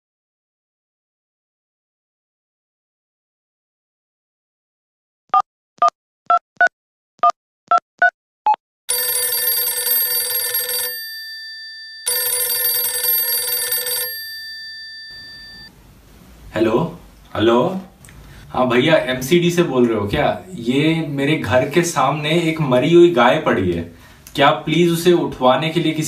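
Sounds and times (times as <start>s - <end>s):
telephone keypad tones: 8.9s - 11.1s, 12.0s - 15.7s
phone ringing: 8.9s - 15.7s.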